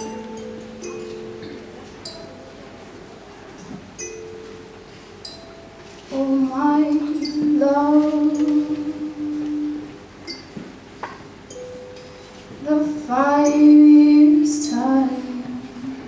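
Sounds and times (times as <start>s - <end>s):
soft held musical tones: 0.0s - 16.0s
woman singing over pa: 6.1s - 9.9s.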